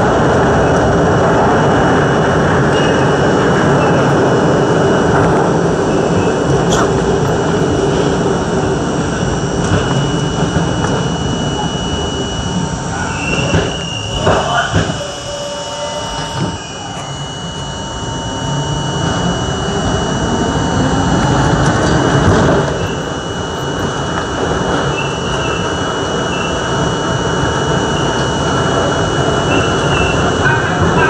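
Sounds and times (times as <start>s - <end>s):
train wheels roaring on rail: 0.0s - 31.0s
high wheel squeal: 8.8s - 22.1s.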